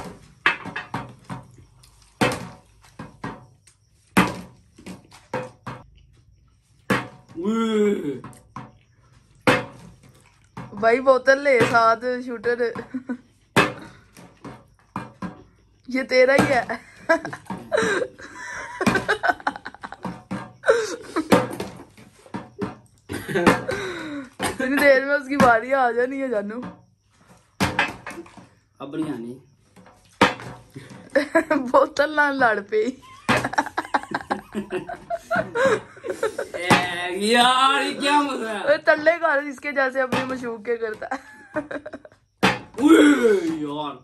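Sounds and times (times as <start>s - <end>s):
plastic bottle knocking on glass: 0.0s - 3.6s, 4.2s - 5.9s, 6.9s - 7.4s, 9.4s - 15.5s, 16.3s - 18.0s, 18.6s - 25.7s, 29.8s - 31.2s, 33.2s - 35.9s, 36.6s - 37.0s, 40.0s - 42.8s
plastic bottle knocking on glass table: 9.4s - 13.0s, 18.8s - 20.6s, 21.2s - 23.8s, 40.0s - 42.8s
laughter: 17.1s - 20.0s, 23.1s - 23.9s, 33.2s - 36.7s, 41.1s - 42.2s.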